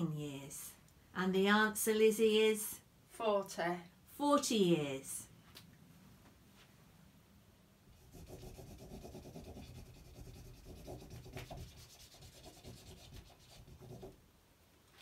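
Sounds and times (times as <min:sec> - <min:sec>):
highlighter scratching on paper: 0:08.0 - 0:14.2.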